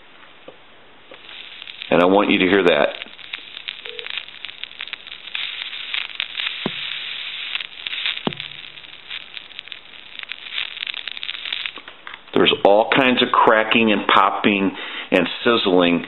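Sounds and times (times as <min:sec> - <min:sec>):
sharp pops: 0:00.5 - 0:13.1
telephone line static crackling: 0:01.1 - 0:13.3.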